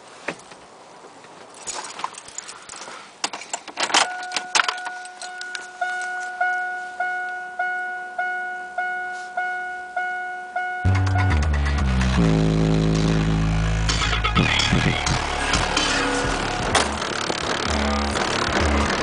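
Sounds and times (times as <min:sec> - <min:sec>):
keys jangling: 0:01.5 - 0:06.4
car warning chime dinging: 0:04.1 - 0:11.5.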